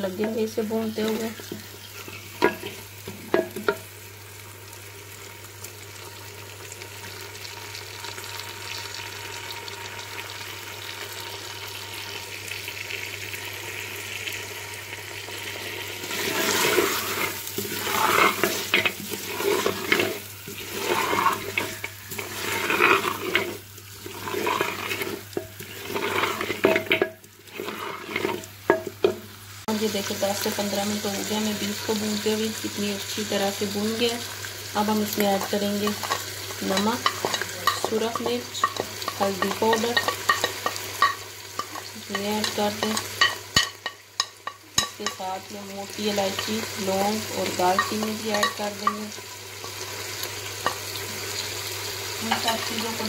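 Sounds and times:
meat sizzling in hot oil: 0:00.0 - 0:53.0
stirring: 0:16.0 - 0:29.2, 0:35.3 - 0:45.2, 0:47.7 - 0:49.0.

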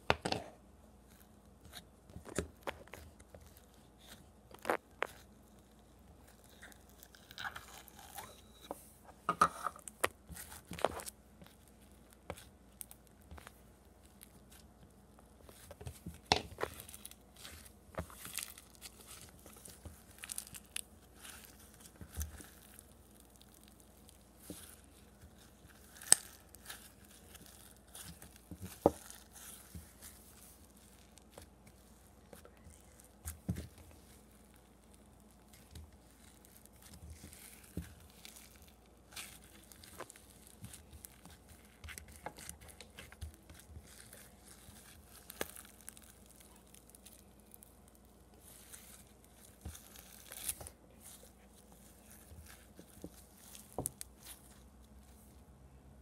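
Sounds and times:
slime crunching and crackling: 0:01.0 - 0:08.5, 0:09.8 - 0:55.5.

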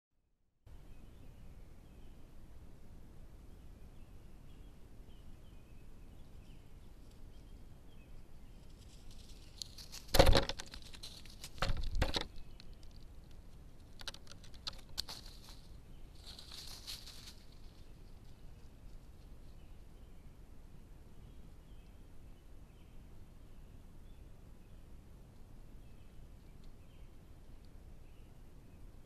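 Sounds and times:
dry leaves crackling: 0:08.6 - 0:19.3.

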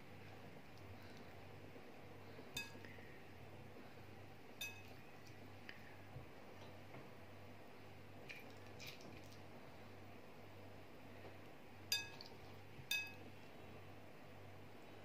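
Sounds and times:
glass bowl clinking: 0:02.6 - 0:02.8, 0:04.6 - 0:05.0, 0:11.9 - 0:12.3, 0:12.9 - 0:13.2.

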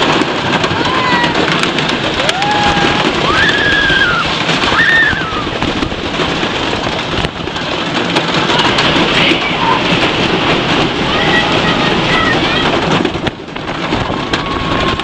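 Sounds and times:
steady rushing noise: 0:00.0 - 0:15.0
high rising and falling cries: 0:02.1 - 0:05.6.

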